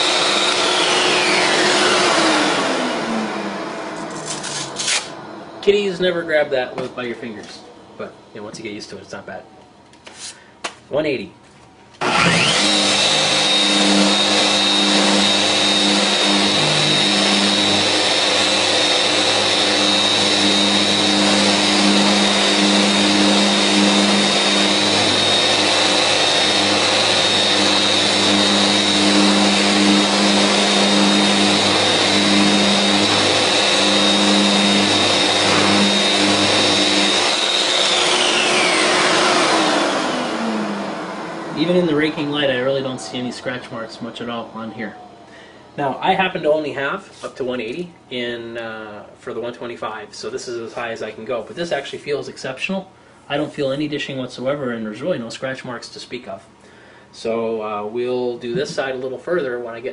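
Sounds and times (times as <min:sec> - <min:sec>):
dust extractor running: 0:00.0 - 0:07.6, 0:12.0 - 0:46.6, 0:58.4 - 0:58.9
orbital sander whining: 0:00.0 - 0:07.6, 0:12.0 - 0:46.6, 0:58.5 - 0:58.9.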